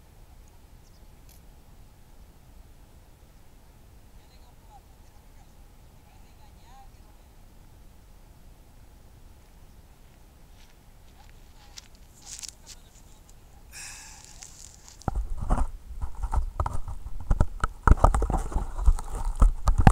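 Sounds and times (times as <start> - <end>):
footsteps on grass: 10.1 - 15.7.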